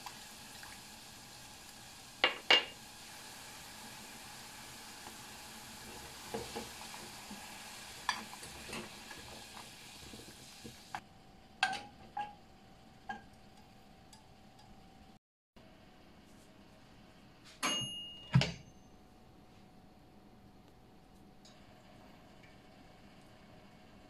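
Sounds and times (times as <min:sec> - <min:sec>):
sauce boiling and sizzling: 0:00.0 - 0:15.9, 0:21.5 - 0:24.0.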